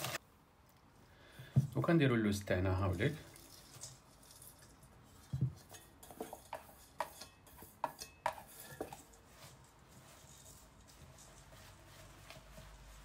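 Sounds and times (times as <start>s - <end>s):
hands rustling in bowl: 2.7s - 13.0s
steel bowls knocking and clinking: 3.3s - 9.2s.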